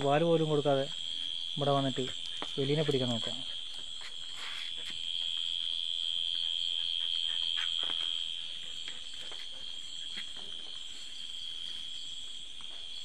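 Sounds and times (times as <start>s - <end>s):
night insects chorus: 0.0s - 13.0s.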